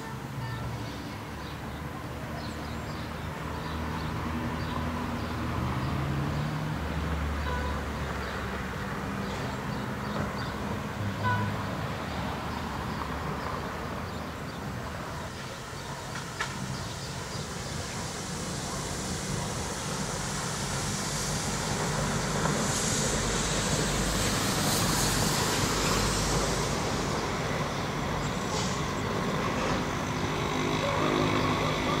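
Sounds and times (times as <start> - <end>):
diesel locomotive engine drone: 0.0 - 32.0
high hiss: 15.8 - 30.6.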